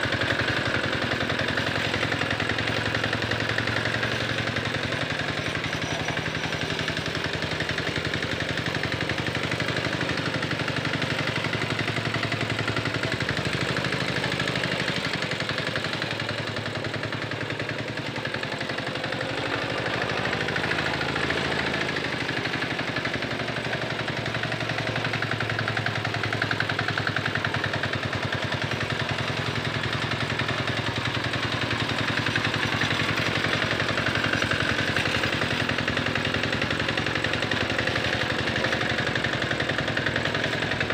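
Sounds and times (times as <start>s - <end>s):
hand tractor engine chugging: 0.0s - 40.9s.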